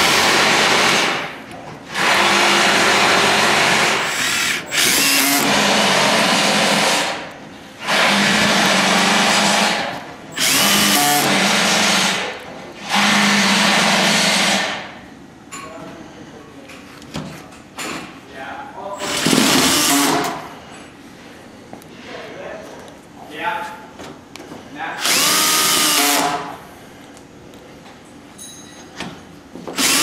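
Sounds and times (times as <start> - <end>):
cordless drill driving screws: 1.9 - 7.2, 10.4 - 14.8, 19.0 - 20.4, 25.0 - 26.5, 29.7 - 30.0.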